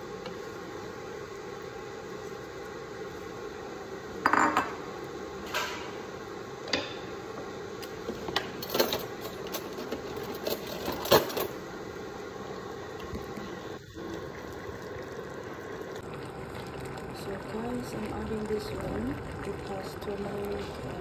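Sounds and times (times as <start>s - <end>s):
simmering pan hiss: 0.0s - 21.0s
kitchen utensils clinking: 8.2s - 11.6s.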